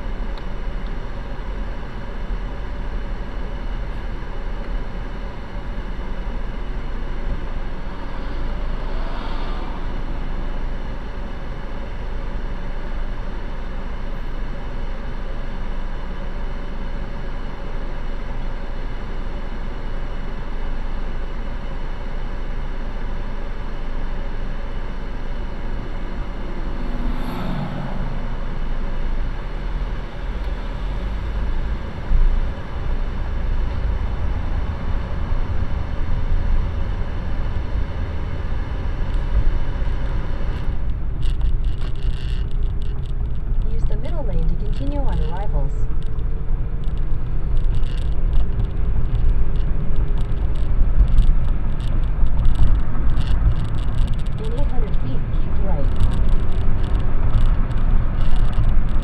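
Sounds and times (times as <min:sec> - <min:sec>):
car engine rumble in traffic: 0:00.0 - 0:59.0
brief rising sound: 0:25.8 - 0:29.5.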